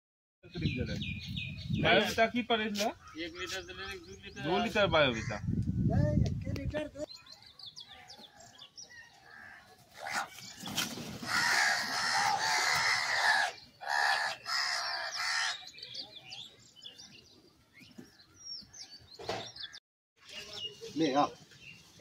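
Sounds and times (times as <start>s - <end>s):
crows cawing: 9.1s - 10.3s, 11.2s - 15.7s.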